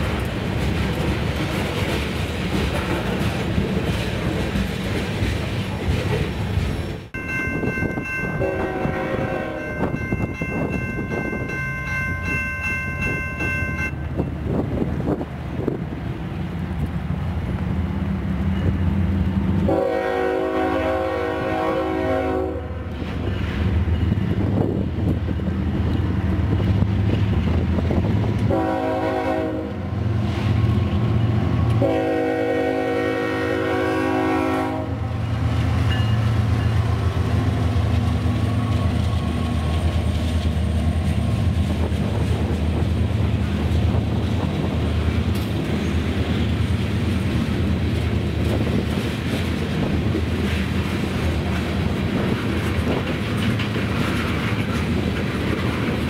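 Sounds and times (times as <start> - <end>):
train wheels clicking on rail joints: 0.0 - 19.8, 22.8 - 28.6, 29.7 - 32.0, 35.1 - 56.0
locomotive rumble: 0.0 - 56.0
train horn blasts: 8.2 - 10.0, 19.6 - 22.9, 28.5 - 30.0, 31.7 - 35.3.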